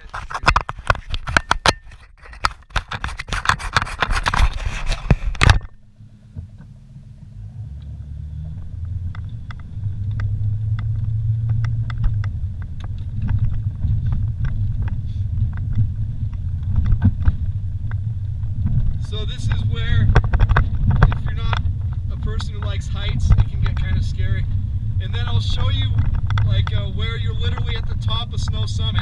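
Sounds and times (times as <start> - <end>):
crackling scraping clatter: 0.0 - 29.0
engine and tyres rumbling: 0.0 - 29.0
small clicks and rattles: 8.5 - 29.0.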